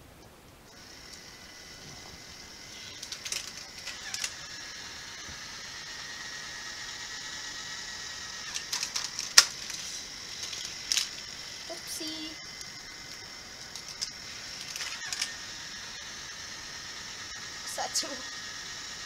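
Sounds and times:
toy motor whirring: 0:00.7 - 0:19.0
plastic clicks of toy car and track: 0:02.8 - 0:04.4, 0:08.4 - 0:11.2, 0:12.6 - 0:15.4.

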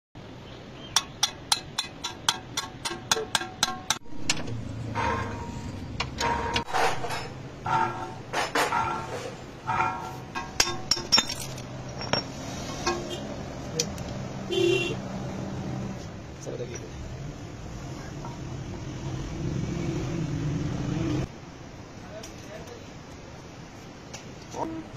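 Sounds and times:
hammer striking steel: 0:01.0 - 0:13.2
ringing metal knocks and clinks: 0:01.2 - 0:13.2.

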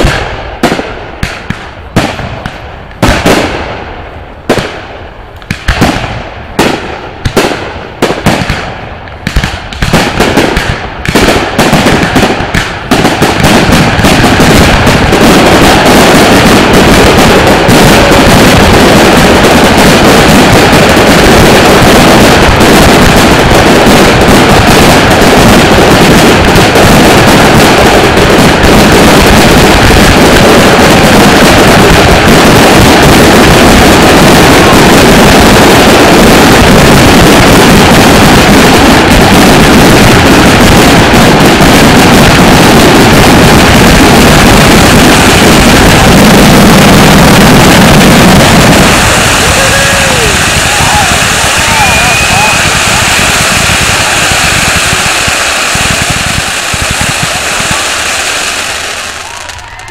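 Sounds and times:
fireworks bursting: 0:00.0 - 0:59.9.

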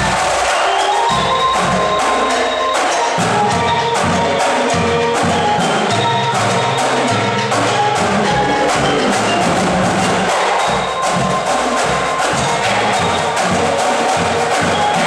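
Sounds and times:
marimba ensemble playing: 0:00.3 - 0:15.0
low bass notes: 0:07.6 - 0:10.3.

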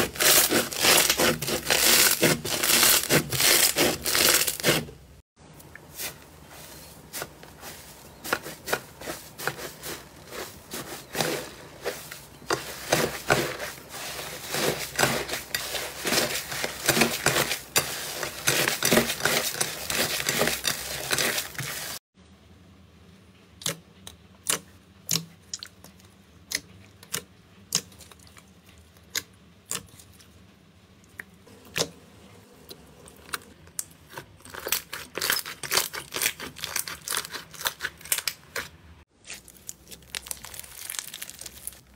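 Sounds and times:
slime crackling and tearing: 0:00.0 - 0:04.8, 0:33.2 - 0:41.9.

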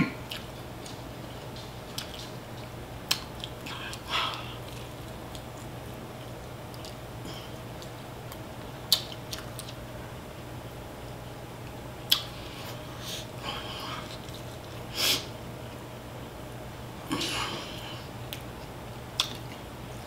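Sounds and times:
steady low hum: 0:00.0 - 0:20.0
wet chewing smacks: 0:00.3 - 0:07.0, 0:07.8 - 0:09.8, 0:19.2 - 0:19.6.

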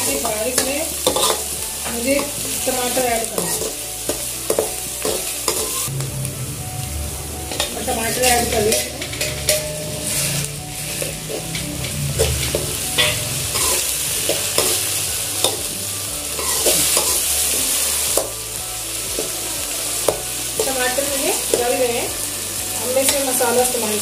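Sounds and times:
vegetables sizzling in oil: 0:00.0 - 0:24.0
metal spoon scraping pan: 0:00.5 - 0:05.9, 0:07.6 - 0:15.7, 0:16.4 - 0:17.5.

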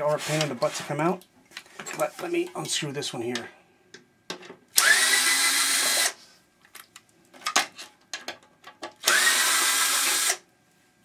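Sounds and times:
power drill whirring: 0:04.8 - 0:06.2, 0:09.0 - 0:10.4.

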